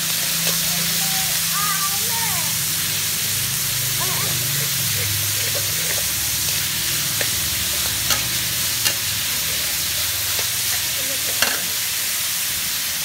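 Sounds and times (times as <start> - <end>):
meat sizzling in a wok: 0.0 - 13.0
metal spatula stirring: 4.6 - 11.8
spatula clinking against pan: 11.4 - 11.7.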